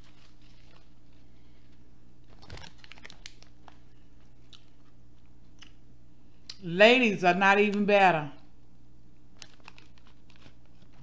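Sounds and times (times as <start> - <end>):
steady low hum: 0.0 - 11.0
person chewing food: 2.3 - 5.8.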